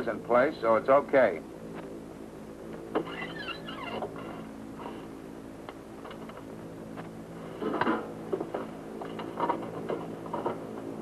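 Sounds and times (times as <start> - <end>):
old film soundtrack hum: 0.0 - 11.0
knocks and bumps of movement: 7.6 - 11.0.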